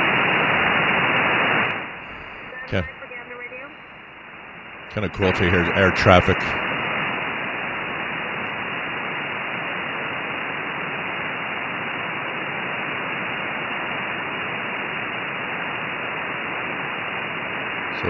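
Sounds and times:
shortwave radio static hiss: 0.0 - 18.0.

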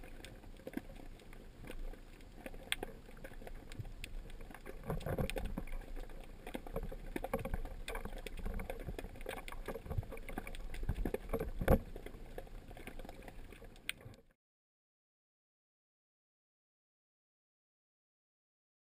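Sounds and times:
clicks and knocks of diving gear: 0.0 - 14.3.

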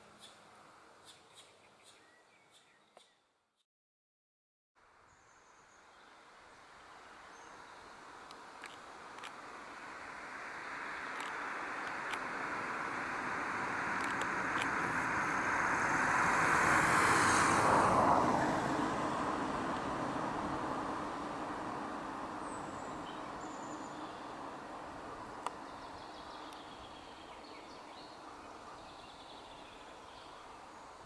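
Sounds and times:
passing vehicle rushing: 9.4 - 25.9.

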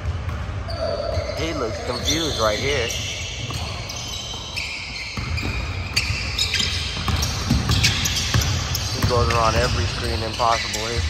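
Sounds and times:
gym hall noise: 0.0 - 11.0
basketball bouncing on hardwood: 5.2 - 10.0.

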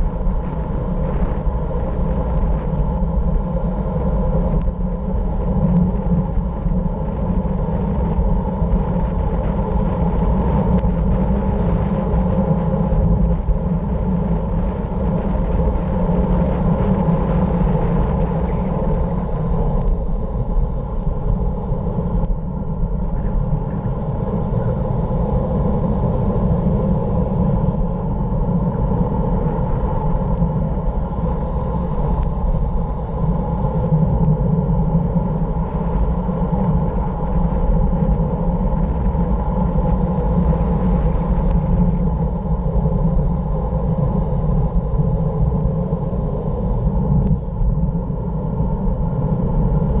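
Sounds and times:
wind rushing over microphone: 0.0 - 50.0.

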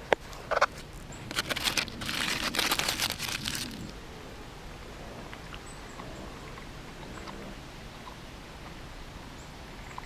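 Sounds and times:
aluminium foil crumpling: 1.2 - 3.9.

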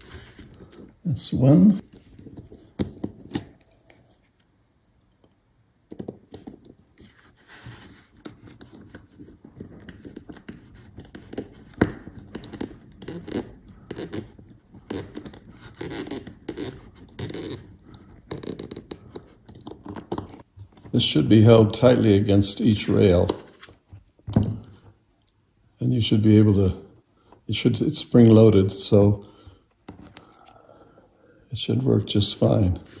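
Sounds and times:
fingers handling plastic parts: 0.0 - 21.0.

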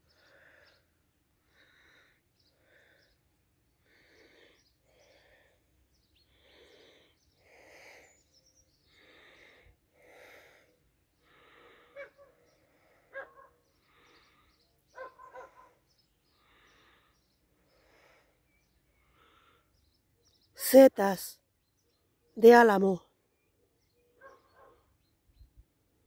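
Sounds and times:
person breathing softly: 0.0 - 14.9, 15.5 - 20.0.

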